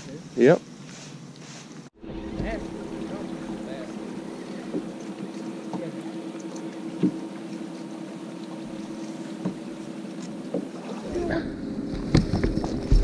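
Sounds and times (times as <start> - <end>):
electric trolling motor humming: 2.0 - 13.0
knocks on boat deck: 7.0 - 7.2, 9.4 - 9.7, 10.5 - 10.7.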